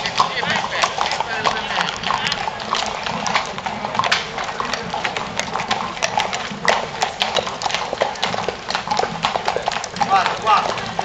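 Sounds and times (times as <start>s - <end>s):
hooves clip-clopping on asphalt: 0.0s - 11.0s.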